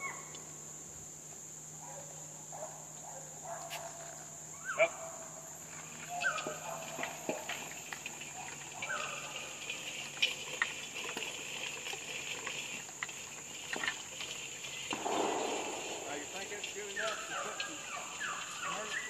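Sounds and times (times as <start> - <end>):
crickets chirring: 0.0 - 19.0
harrow pulled through soil: 3.7 - 19.0
horse harness clinking: 6.0 - 19.0.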